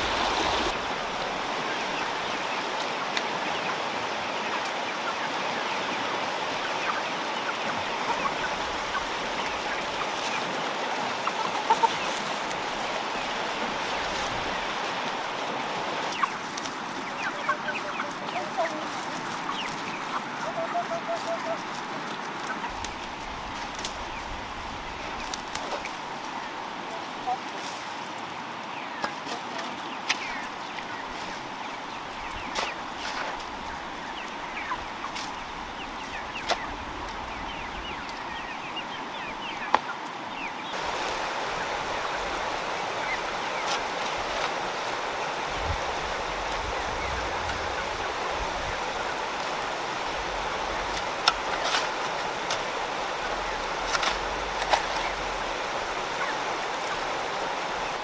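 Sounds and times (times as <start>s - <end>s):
fast-flowing river rushing: 0.0s - 1.7s, 40.8s - 51.2s
chickens clucking: 0.0s - 58.0s.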